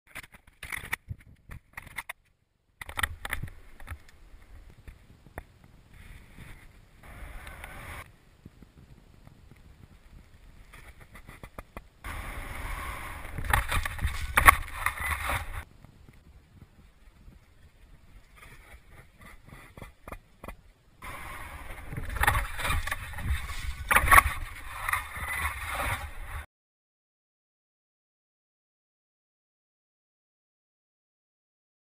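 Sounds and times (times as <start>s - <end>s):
snowboard scraping over snow: 3.6s - 26.5s.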